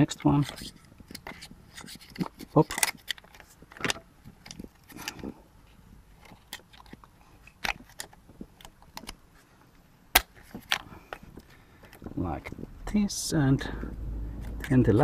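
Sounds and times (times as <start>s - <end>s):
handling noise: 0.0s - 13.0s.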